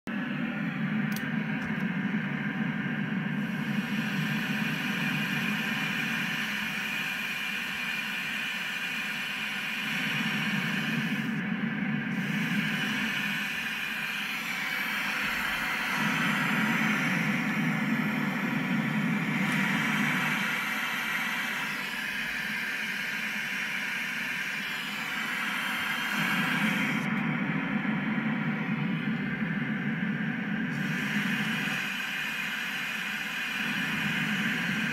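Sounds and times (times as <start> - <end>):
synthesizer noise sweeping: 9.5 - 32.2.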